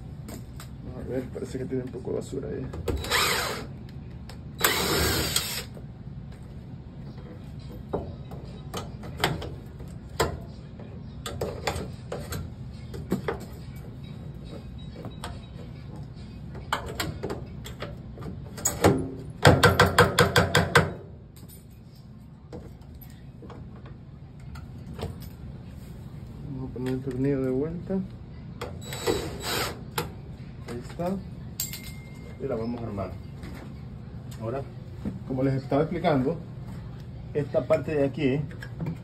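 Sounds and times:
steady low hum: 0:00.0 - 0:19.5.

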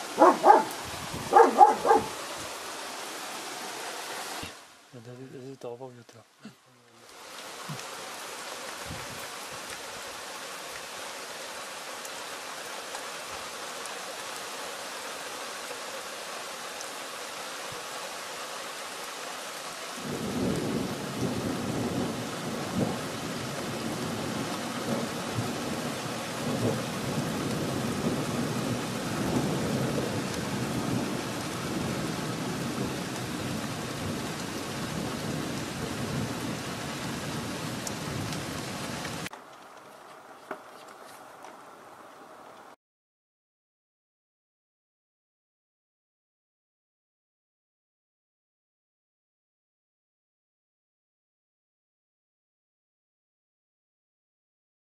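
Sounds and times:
steady rain hissing: 0:00.0 - 0:42.8
thunder rumbling: 0:20.1 - 0:34.3.

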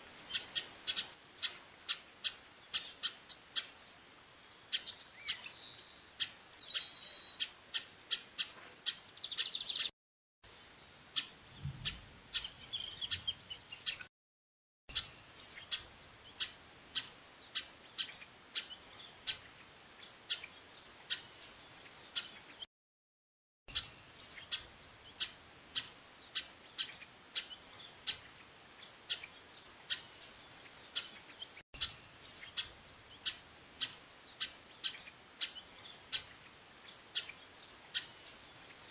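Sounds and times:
insect whine: 0:00.0 - 0:09.8, 0:23.7 - 0:38.9.

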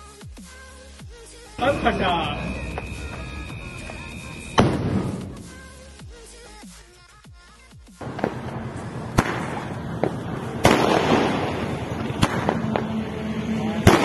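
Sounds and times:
firecracker bangs: 0:01.6 - 0:05.9, 0:08.0 - 0:14.0
small firework pops: 0:08.0 - 0:12.9.

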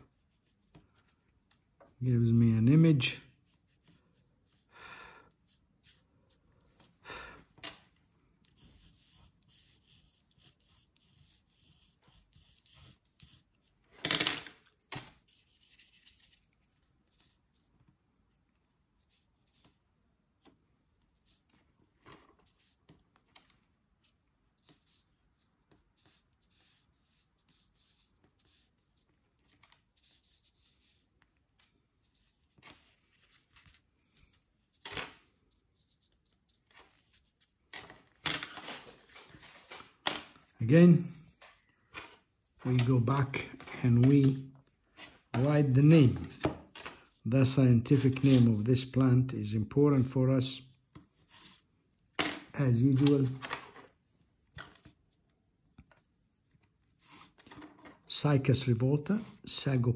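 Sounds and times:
brush pen scratching on paper: 0:00.0 - 0:01.3, 0:02.7 - 0:04.7, 0:05.3 - 0:07.0, 0:07.8 - 0:13.8, 0:14.6 - 0:37.6, 0:47.5 - 0:49.1, 0:50.9 - 0:51.7, 0:56.4 - 0:57.6, 0:59.0 - 0:59.7.

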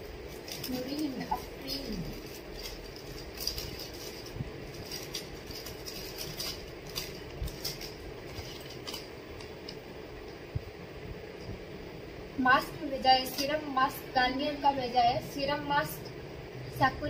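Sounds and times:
plastic packaging rustling: 0:00.0 - 0:09.9
steady background hum: 0:00.0 - 0:17.0.

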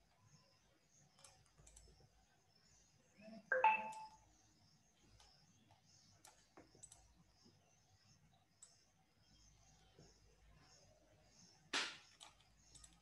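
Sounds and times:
computer mouse clicks: 0:01.0 - 0:02.0, 0:05.1 - 0:07.2, 0:08.5 - 0:08.8, 0:11.8 - 0:13.0
two-note electronic notification tone: 0:03.5 - 0:04.1.

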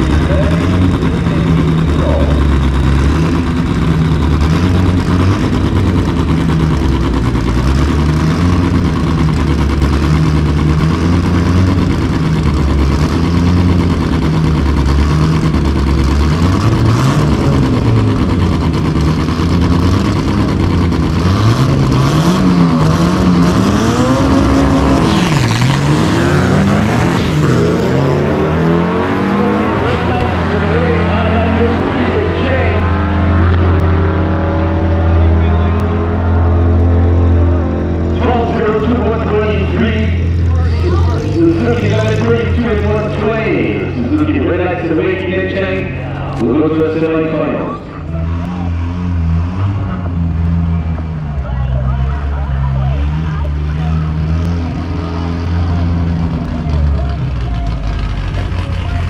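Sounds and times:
race car engines revving: 0:00.0 - 0:59.0
car accelerating through gears: 0:10.0 - 0:45.6.

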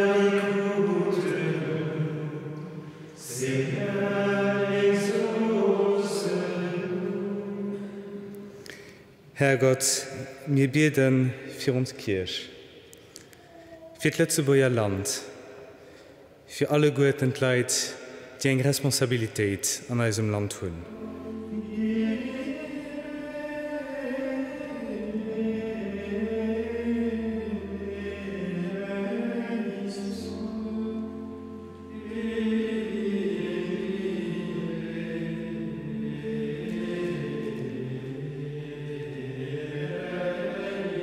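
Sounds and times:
choir chanting: 0:00.0 - 0:08.5, 0:20.5 - 0:41.0.

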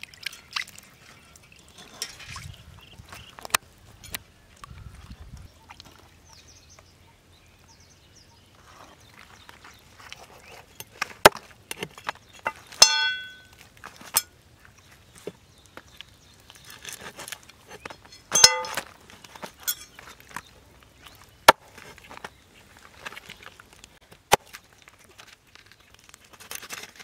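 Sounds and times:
short metallic ring: 0:12.8 - 0:13.5, 0:18.1 - 0:18.8.

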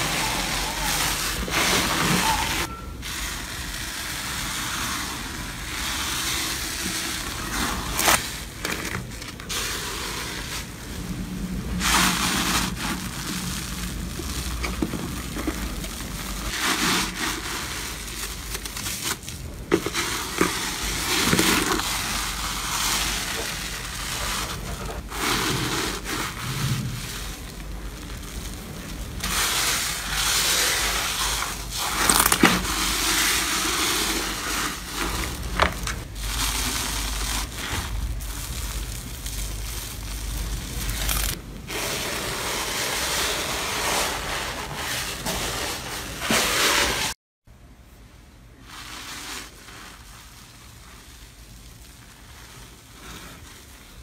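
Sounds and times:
slime crackling and popping: 0:07.1 - 0:30.2, 0:34.6 - 0:41.4.

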